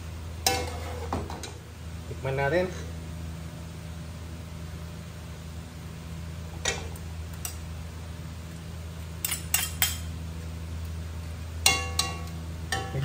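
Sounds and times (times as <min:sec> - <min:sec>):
steady low hum: 0:00.0 - 0:13.0
spoons clinking against metal pot: 0:09.2 - 0:10.1, 0:11.6 - 0:13.0.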